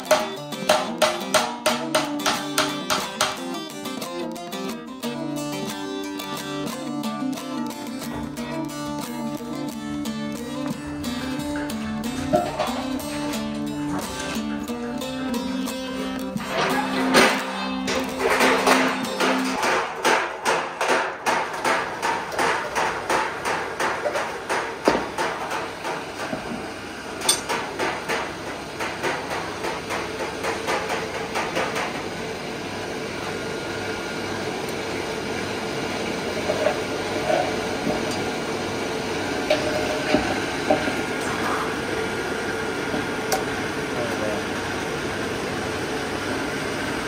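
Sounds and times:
rapid sharp knocks: 0:00.0 - 0:03.6, 0:18.0 - 0:26.0
forge blower humming: 0:05.0 - 0:47.0.

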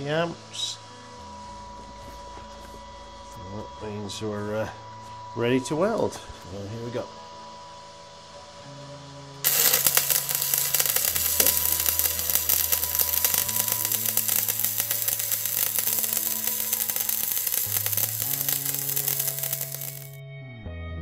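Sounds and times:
soft background music: 0:00.0 - 0:21.0
welding arc crackling: 0:09.4 - 0:20.2.

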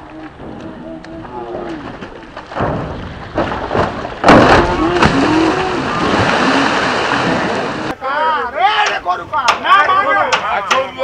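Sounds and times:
churned water rushing: 0:00.0 - 0:08.0
cow splashing into water: 0:01.6 - 0:07.9
voices calling: 0:04.6 - 0:11.0.

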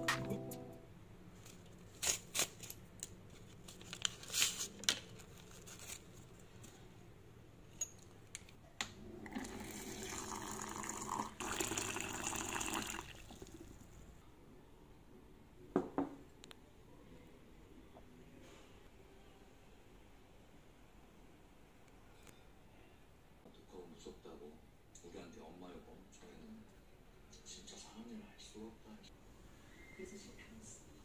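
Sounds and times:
hot water pouring into a mug: 0:09.0 - 0:13.9.

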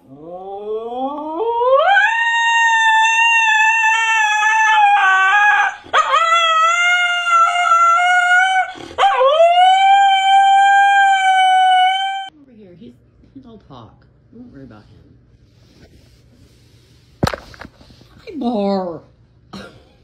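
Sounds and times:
husky howling: 0:00.2 - 0:12.3.

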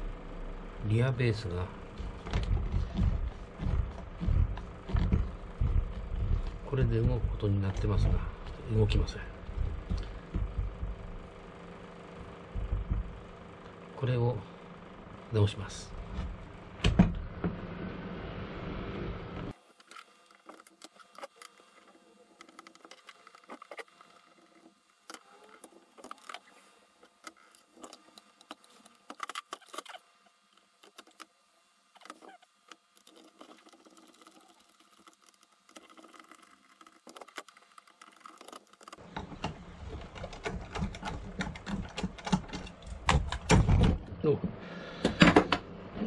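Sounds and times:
clicks and knocks of parts: 0:32.0 - 0:44.0.

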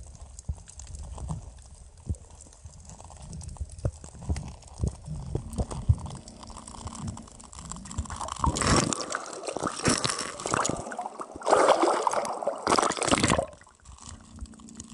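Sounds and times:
water splashing and gurgling: 0:04.7 - 0:14.9.

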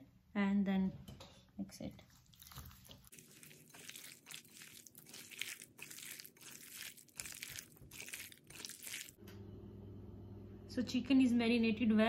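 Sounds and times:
hand squelching meat in marinade: 0:02.1 - 0:09.2.

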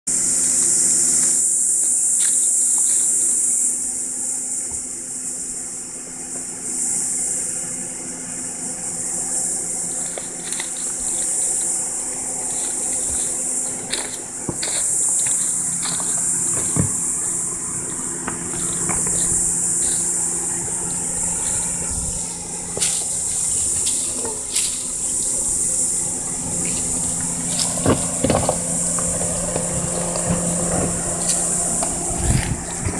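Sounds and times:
engine running at low revs: 0:00.1 - 0:32.9
high insect buzz: 0:00.1 - 0:32.9
tyres crunching on stones: 0:00.4 - 0:03.8, 0:09.3 - 0:32.9.

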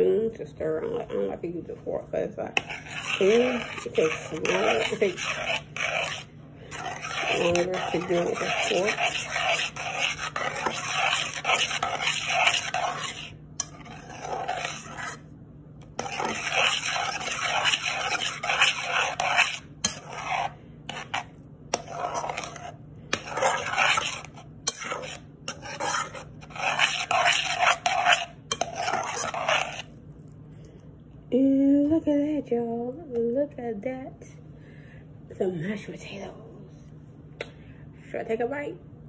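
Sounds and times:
metal spoon stirring mashed potatoes: 0:02.5 - 0:15.2, 0:15.8 - 0:30.0.

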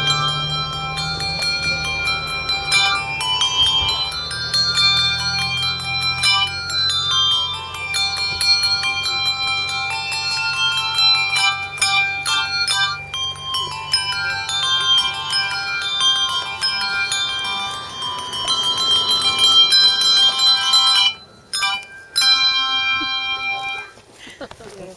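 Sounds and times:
handbells ringing a tune: 0:00.0 - 0:24.5.

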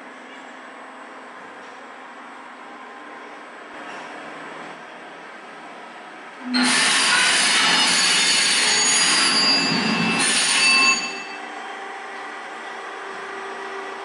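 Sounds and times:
ship's steam whistle blast: 0:06.4 - 0:11.4.

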